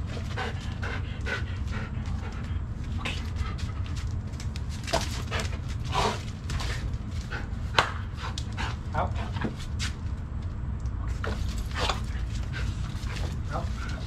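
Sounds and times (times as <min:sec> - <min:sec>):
dog panting: 0:00.0 - 0:04.3, 0:04.9 - 0:09.6, 0:11.6 - 0:14.0
steady low hum: 0:00.0 - 0:14.0.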